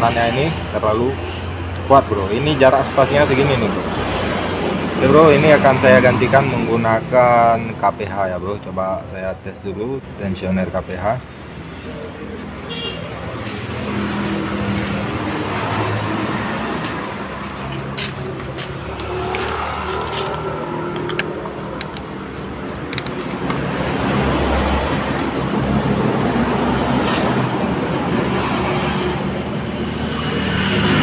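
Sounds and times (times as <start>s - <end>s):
traffic noise: 0.0s - 31.0s.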